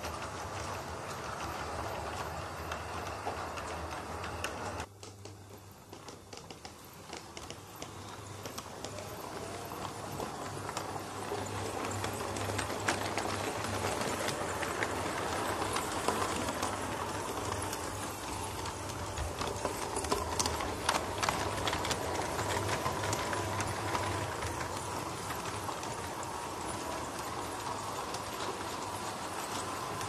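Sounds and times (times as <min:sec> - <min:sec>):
wheels clicking on rails: 0:00.0 - 0:30.0
model train motor whirring: 0:07.0 - 0:30.0.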